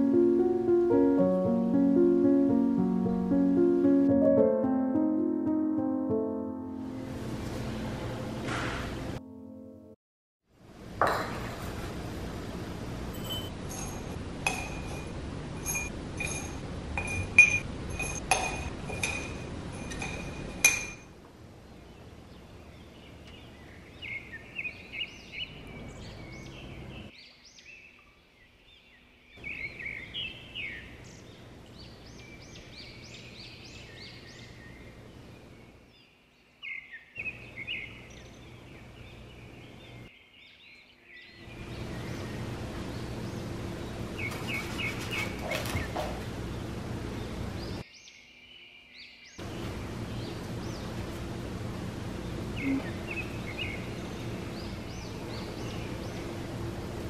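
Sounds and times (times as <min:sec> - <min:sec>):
glass jars clinking: 0:13.1 - 0:21.1
birds chirping: 0:21.6 - 0:57.0.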